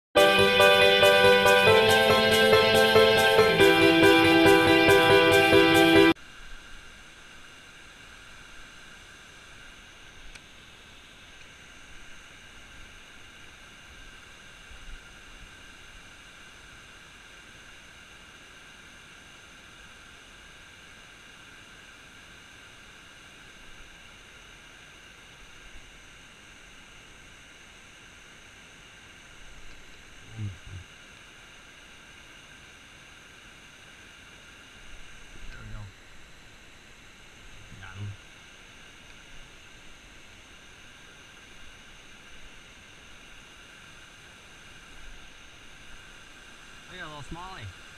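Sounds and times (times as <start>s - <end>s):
faint click: 10.3s - 10.5s.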